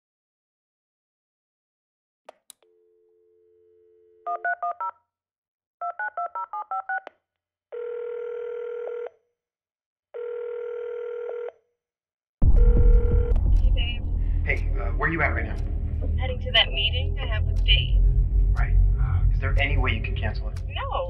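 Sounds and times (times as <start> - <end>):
telephone dial tone: 7.8 - 9.1, 10.2 - 11.5.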